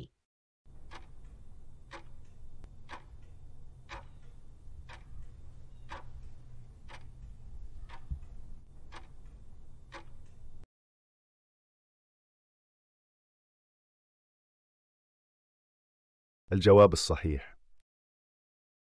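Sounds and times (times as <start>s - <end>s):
low steady hum: 0.7s - 10.6s
clock ticking timer: 0.7s - 10.7s.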